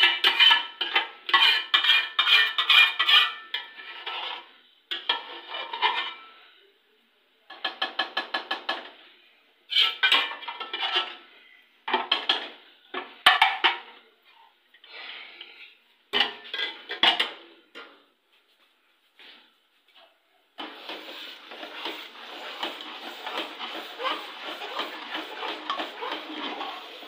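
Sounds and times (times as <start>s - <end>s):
metal spoon scraping a steel pot: 0.0s - 6.4s, 9.7s - 11.3s, 20.6s - 27.0s.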